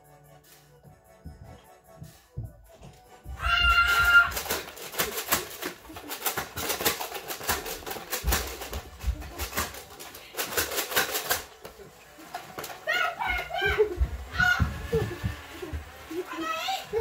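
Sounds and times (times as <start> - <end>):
heavier thumps: 1.2 - 4.7
foam dart blasters clicking: 3.5 - 17.0.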